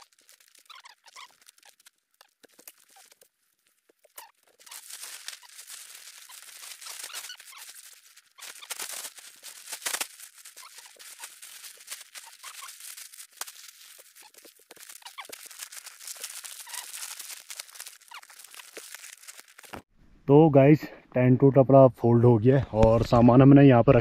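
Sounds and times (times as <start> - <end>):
small squeaks and clicks: 0.0 - 19.9
tent fabric rustling: 2.5 - 19.9.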